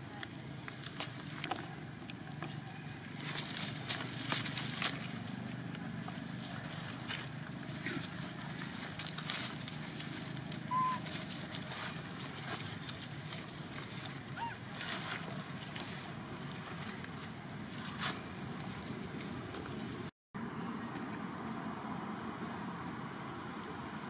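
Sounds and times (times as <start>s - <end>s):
dry leaves rustling and crackling: 3.1s - 20.1s
faint steady high tone: 10.6s - 11.3s
short high squeak: 10.7s - 11.1s.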